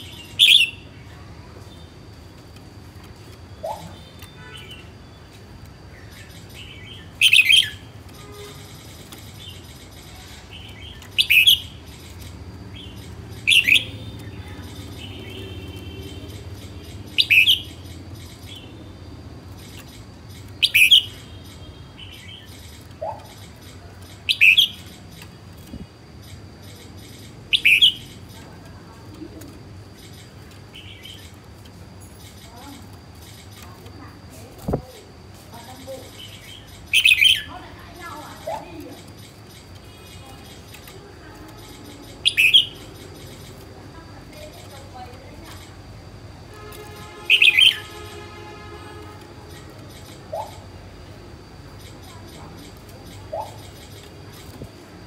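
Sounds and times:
faint bird chirping: 0:00.0 - 0:55.0
bird calling short high phrases: 0:47.0 - 0:48.2.

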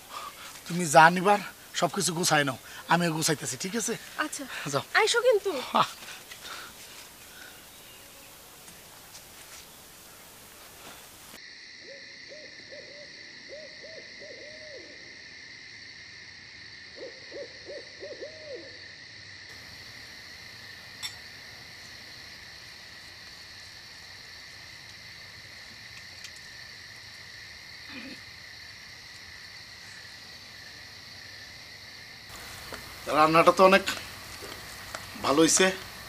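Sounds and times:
night bird calls: 0:00.0 - 0:15.2, 0:16.9 - 0:18.9, 0:29.2 - 0:36.0
crickets droning: 0:00.0 - 0:36.0.

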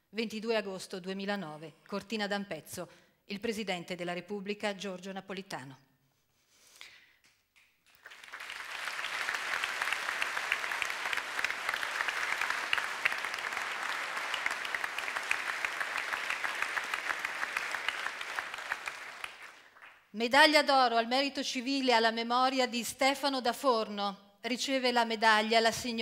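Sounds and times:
crowd applauding: 0:07.8 - 0:20.1.

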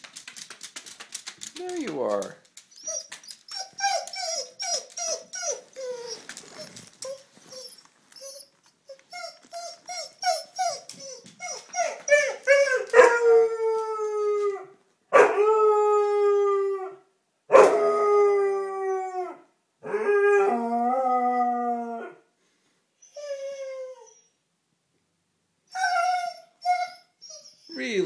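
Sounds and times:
dog yipping and howling: 0:02.8 - 0:22.2, 0:25.7 - 0:28.0.

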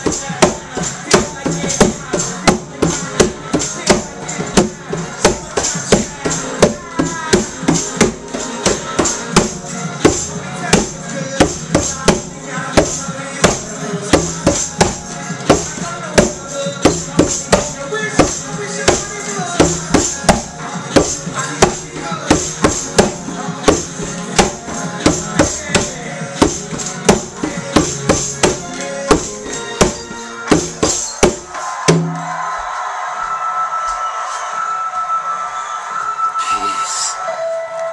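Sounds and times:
music: 0:00.0 - 0:37.9
conga drums struck by hand: 0:14.2 - 0:32.2.

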